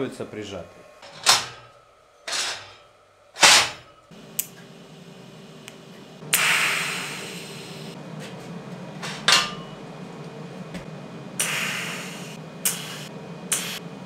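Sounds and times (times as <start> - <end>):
low steady hum: 0.0 - 14.0
welding arc hiss: 3.4 - 8.0, 11.4 - 13.9.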